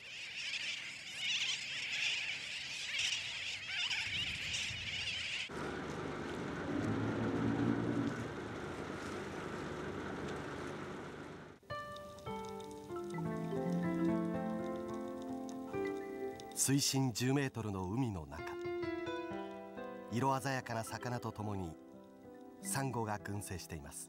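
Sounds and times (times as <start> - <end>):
seabird colony chattering: 0.0 - 5.5
steady low rumble: 5.5 - 11.6.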